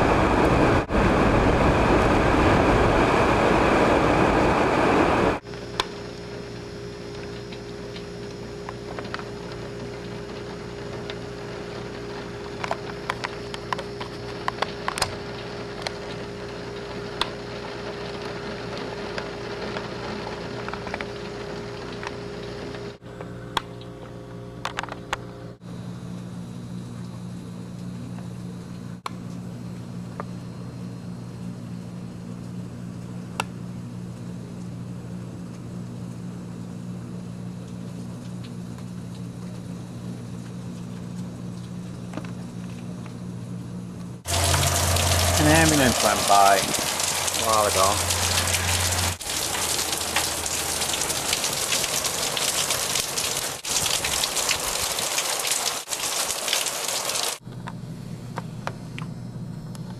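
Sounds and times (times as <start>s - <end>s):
rain ticking on glass: 8.7s - 22.8s, 44.3s - 57.4s
vehicle hum from inside: 44.2s - 51.1s.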